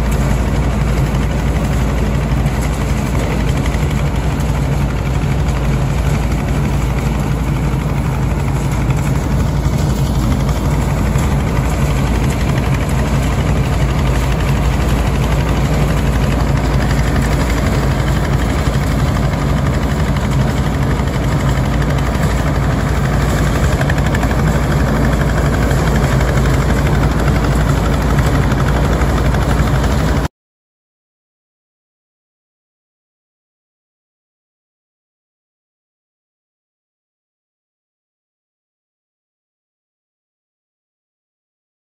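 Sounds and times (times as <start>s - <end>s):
grass-cutting machine running: 0.0s - 30.3s.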